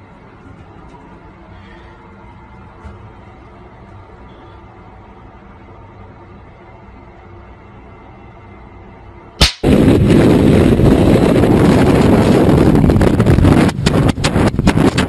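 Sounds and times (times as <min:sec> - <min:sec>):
sharp bang: 0:09.4 - 0:11.0
loud distorted rushing noise: 0:09.4 - 0:15.0.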